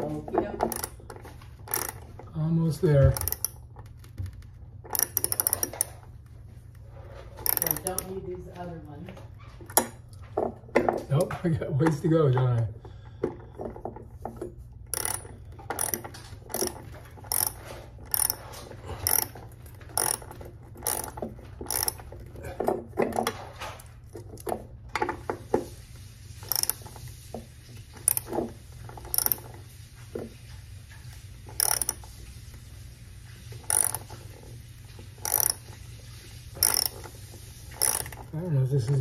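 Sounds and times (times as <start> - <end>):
ratchet wrench clicking: 0.6 - 2.2, 3.1 - 3.9, 4.9 - 6.0, 7.4 - 8.1, 14.9 - 22.3, 26.4 - 27.0, 27.9 - 29.6, 31.5 - 32.2, 33.6 - 34.5, 35.2 - 35.8, 36.6 - 38.3.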